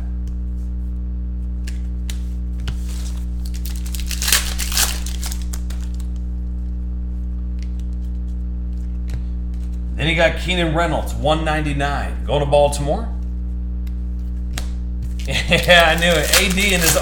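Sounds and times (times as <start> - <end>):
low electrical hum: 0.0 - 17.0
foil pack tearing and crinkling: 2.8 - 6.2, 15.0 - 17.0.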